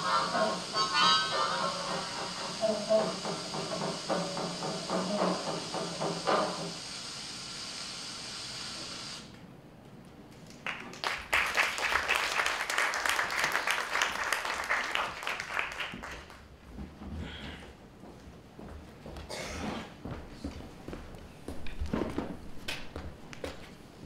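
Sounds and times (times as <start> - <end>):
steady soundtrack hiss: 0.0 - 10.3
audience applause: 10.5 - 16.4.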